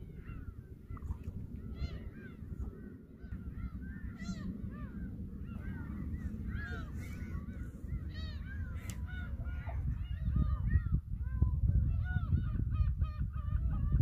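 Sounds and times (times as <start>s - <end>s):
flock of birds calling: 0.0s - 11.0s
low rumble: 0.0s - 14.0s.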